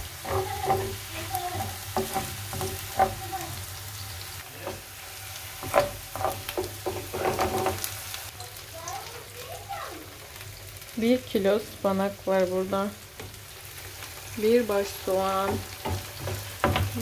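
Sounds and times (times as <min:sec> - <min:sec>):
wooden spoon scraping and knocking pan: 0:00.0 - 0:03.6, 0:04.5 - 0:08.0, 0:14.9 - 0:17.0
onions sizzling in hot oil: 0:00.0 - 0:17.0.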